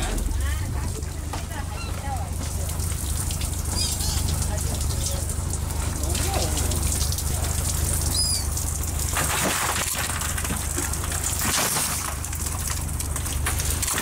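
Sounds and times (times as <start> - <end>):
boat engine droning: 0.0 - 14.0
shrimp rattling onto deck: 8.9 - 14.0.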